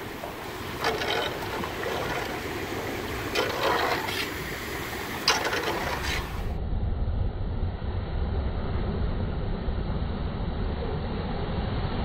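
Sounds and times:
floodwater sloshing and splashing: 0.0s - 6.5s
squeegee pushing water: 0.0s - 6.5s.

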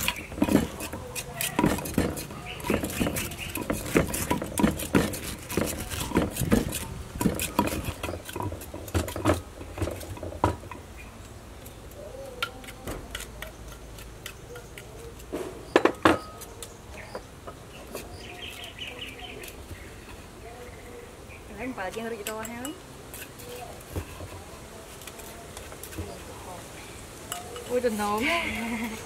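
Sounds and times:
cleaver scraping cuts: 0.0s - 10.1s, 11.2s - 20.4s.

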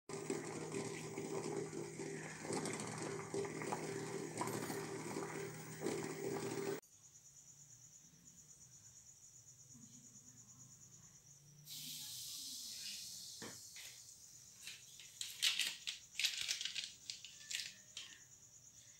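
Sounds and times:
water boiling and bubbling: 0.0s - 6.8s.

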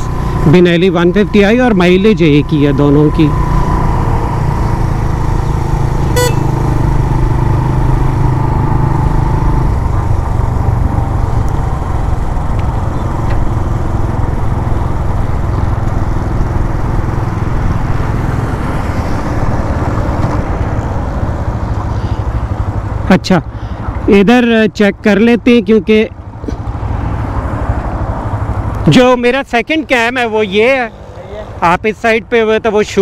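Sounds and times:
motorcycle engine running: 0.0s - 24.2s
horn toot: 6.1s - 6.7s.

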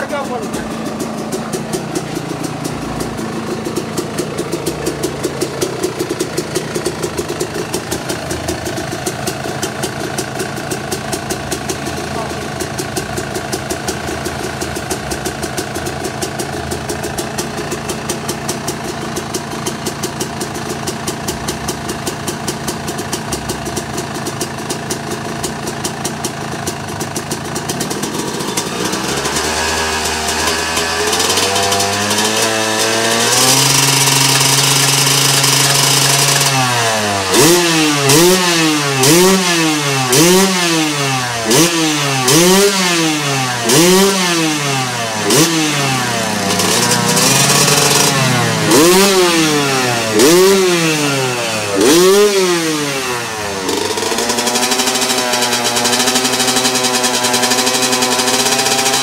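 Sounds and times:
motorcycle engine idling and revving: 0.0s - 59.0s
quick throttle blips: 28.1s - 59.0s.

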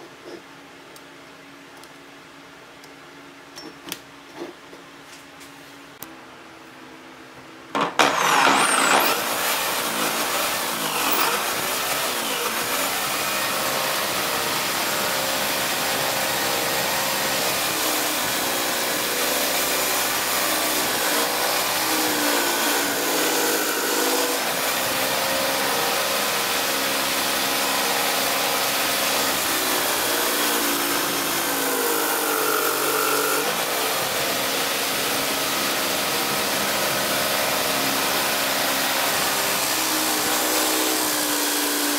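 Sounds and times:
wood pressed against sanding disc: 7.8s - 24.3s
drill spinning sanding disc: 7.8s - 41.9s.

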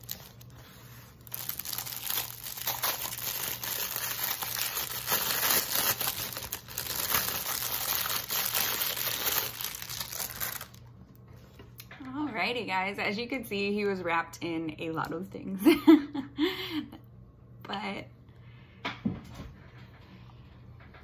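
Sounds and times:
plastic wrapping crinkling: 0.0s - 10.9s.

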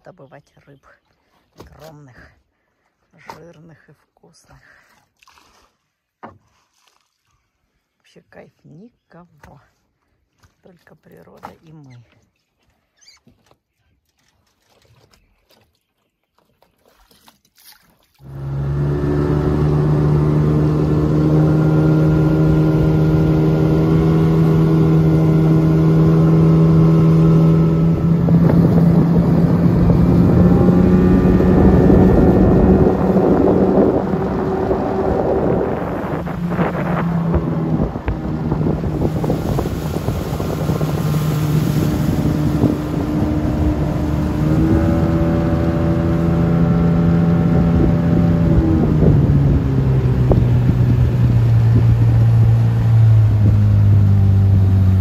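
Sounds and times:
motorboat engine running: 18.1s - 55.0s
water rushing: 18.1s - 55.0s
wind noise on microphone: 18.7s - 55.0s.

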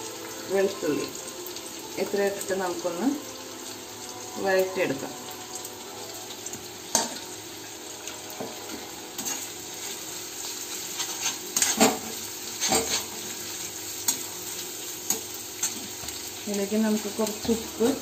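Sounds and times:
food sizzling in oil: 0.0s - 18.0s
metal spoon scraping and clinking: 9.2s - 10.0s, 10.7s - 13.2s.

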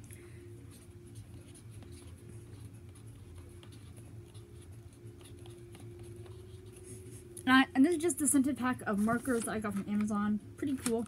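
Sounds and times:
steady low hum: 0.0s - 11.0s
marker scratching on paper: 0.7s - 7.2s.

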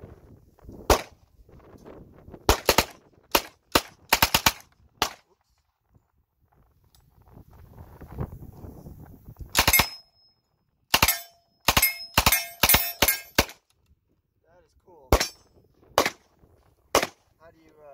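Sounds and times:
single gunshots: 0.9s - 1.2s, 2.5s - 5.2s, 9.6s - 10.0s, 10.9s - 13.6s, 15.1s - 15.4s, 16.0s - 16.3s, 16.9s - 17.3s
submachine gun bursts: 9.6s - 10.0s.

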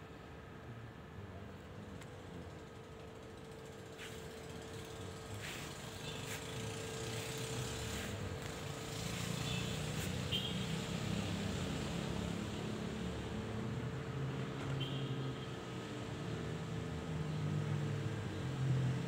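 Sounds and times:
engine running: 1.9s - 12.4s.

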